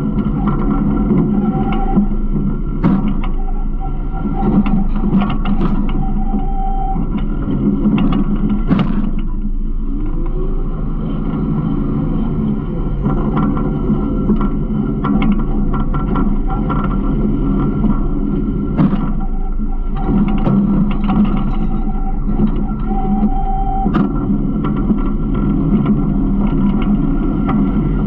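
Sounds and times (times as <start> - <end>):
garbage truck engine running: 0.0 - 28.0
knocks and rattles: 13.0 - 23.3.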